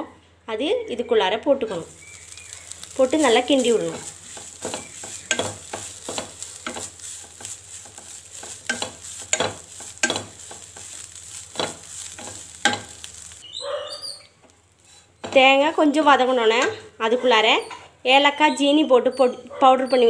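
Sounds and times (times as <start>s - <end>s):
food sizzling: 1.7s - 15.7s
spatula scraping a pan: 1.8s - 13.4s, 14.7s - 15.4s.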